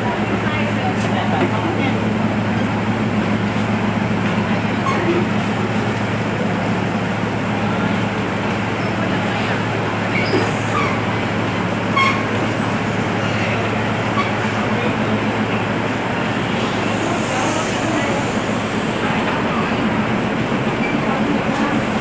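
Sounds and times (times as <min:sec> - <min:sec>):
diesel railcar engine idling: 0:00.0 - 0:22.0.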